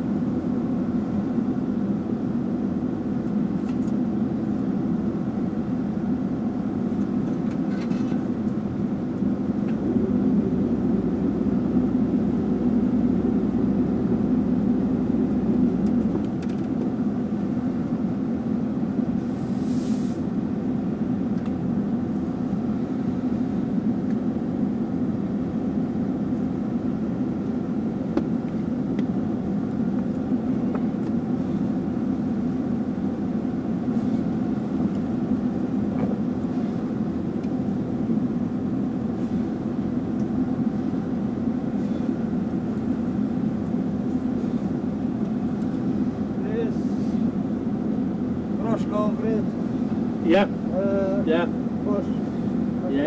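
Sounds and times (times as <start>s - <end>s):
excavator diesel engine idling: 0.0s - 19.2s, 20.2s - 53.0s
brief hiss: 19.3s - 20.2s.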